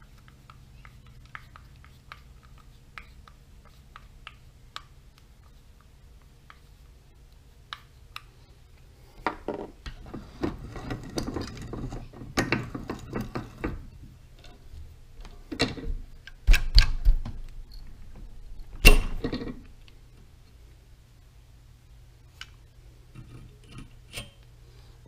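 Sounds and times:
metal tools clicking and scraping: 23.1s - 24.4s.

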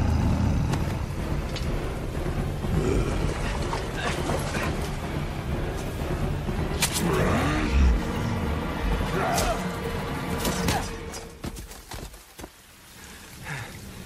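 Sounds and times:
dense low rumble with effects: 0.0s - 11.1s.

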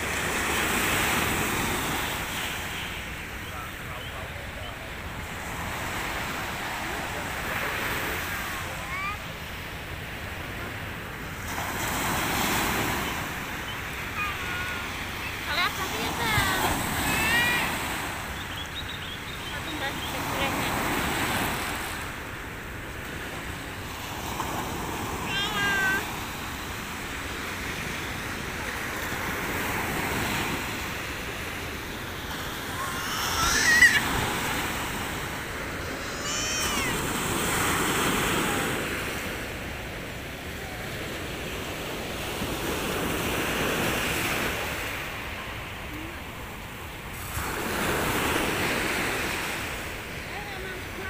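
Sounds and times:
sea waves breaking: 0.0s - 51.0s
short high cries: 32.8s - 34.3s, 36.0s - 37.0s.

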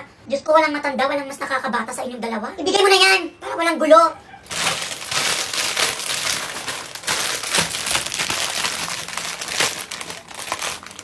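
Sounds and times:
snack bag crinkling: 4.4s - 11.0s.

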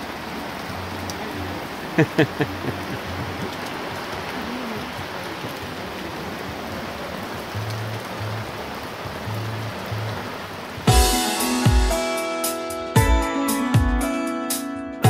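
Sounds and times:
heavy rain on pool water: 0.0s - 14.0s
background music with bass: 9.1s - 15.0s.

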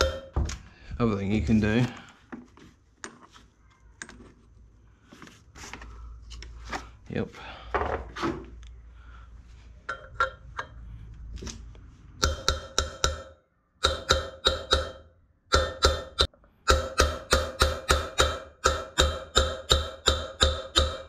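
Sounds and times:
hammer tapping on metal: 0.0s - 0.4s, 9.9s - 10.8s, 12.2s - 21.0s.

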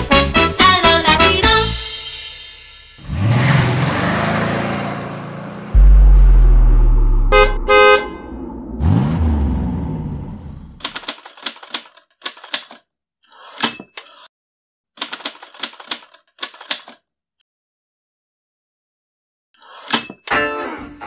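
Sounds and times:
whoosh: 5.7s - 10.8s
typewriter key clacks: 10.8s - 12.8s, 15.0s - 17.0s.

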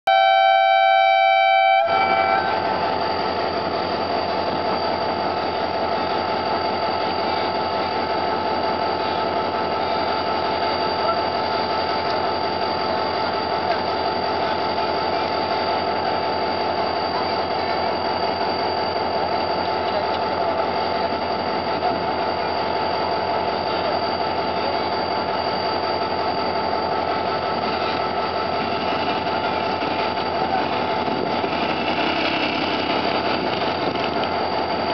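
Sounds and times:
locomotive horn chord: 0.1s - 2.8s.

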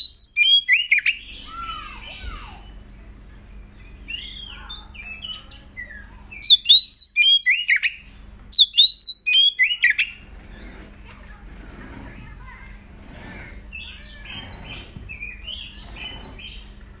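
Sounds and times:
bird singing whistled notes: 0.0s - 1.7s, 3.6s - 10.2s, 13.8s - 16.7s.

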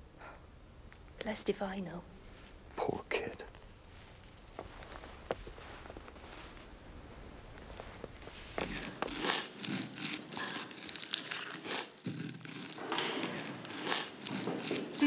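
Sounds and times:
onion skins crinkling and tearing: 7.6s - 15.0s.

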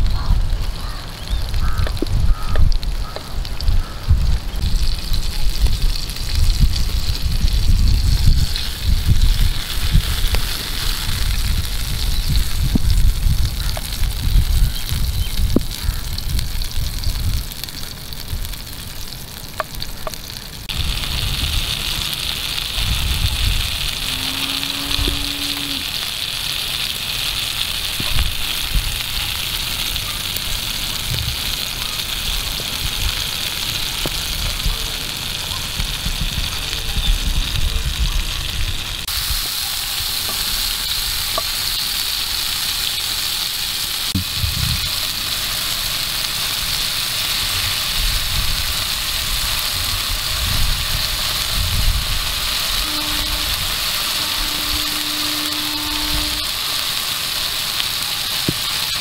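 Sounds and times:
vegetables sizzling in oil: 0.0s - 59.0s
low rumble: 20.6s - 25.9s, 44.1s - 46.6s.

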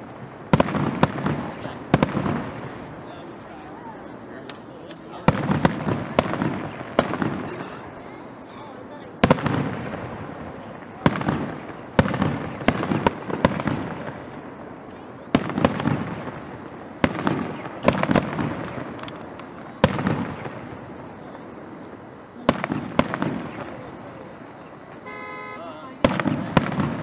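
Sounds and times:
fireworks bursting with echo: 0.0s - 27.0s.

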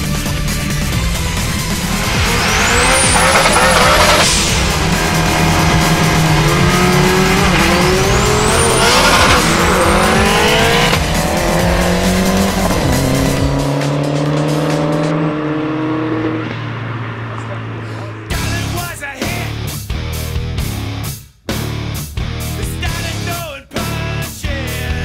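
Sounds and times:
music: 0.0s - 15.7s, 18.3s - 25.0s
race cars accelerating: 0.0s - 18.9s.

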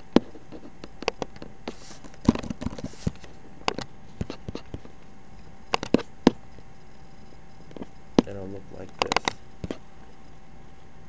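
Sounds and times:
computer mouse clicks: 7.7s - 9.8s.

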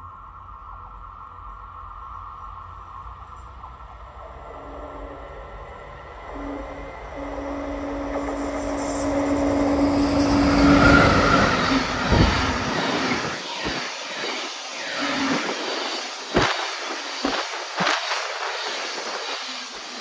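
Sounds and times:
freight train rolling past: 0.0s - 20.0s
steady hum: 0.0s - 20.0s.

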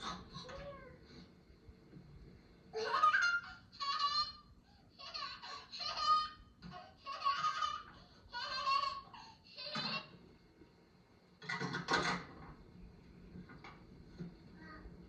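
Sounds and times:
toy kitchen clicks and knocks: 11.4s - 12.6s.

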